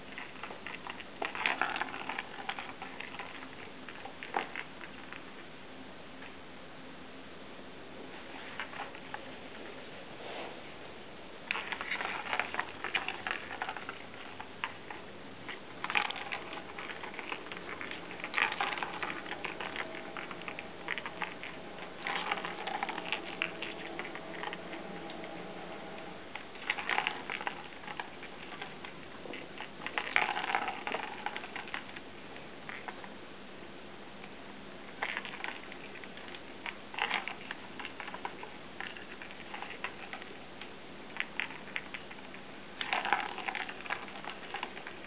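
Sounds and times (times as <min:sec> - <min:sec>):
plastic ball rattling in toy track: 0:00.0 - 0:05.3, 0:11.5 - 0:25.3, 0:26.3 - 0:33.0, 0:35.0 - 0:40.4, 0:41.2 - 0:45.0.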